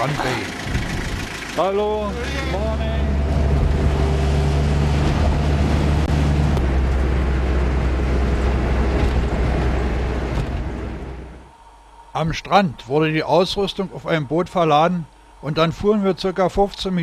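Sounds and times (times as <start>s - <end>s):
rushing wind and road noise: 0.0s - 1.6s, 2.2s - 11.5s
car engine drone: 0.0s - 17.0s.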